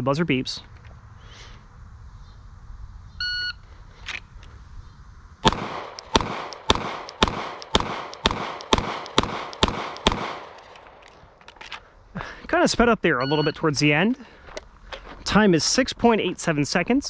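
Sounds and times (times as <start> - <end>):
pistol shots with echo: 5.4 - 11.1.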